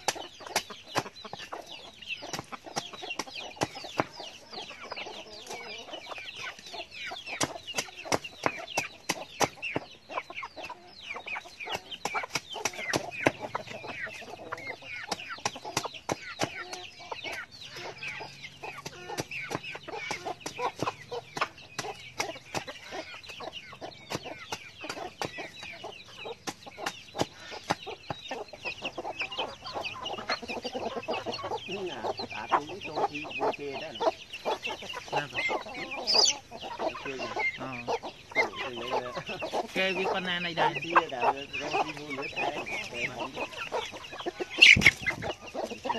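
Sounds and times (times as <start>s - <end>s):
chickens clucking: 0.0s - 45.9s
chicks peeping: 0.0s - 45.9s.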